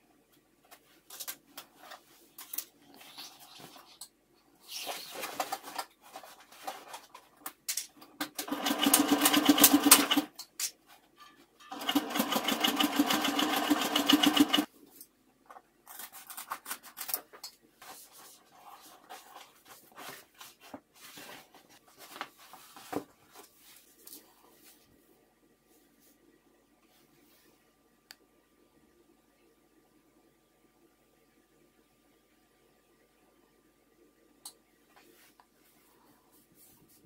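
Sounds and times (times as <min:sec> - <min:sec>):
sewing machine stitching: 0:08.4 - 0:10.4, 0:11.6 - 0:14.7.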